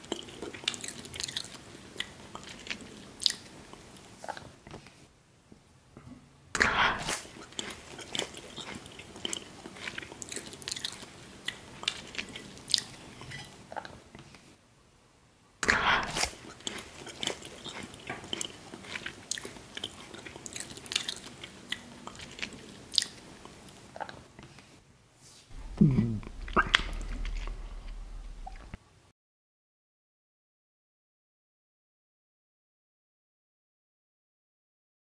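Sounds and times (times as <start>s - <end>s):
chewing with small crunches: 0.0s - 5.0s, 6.6s - 14.5s, 15.6s - 24.8s, 25.5s - 28.8s.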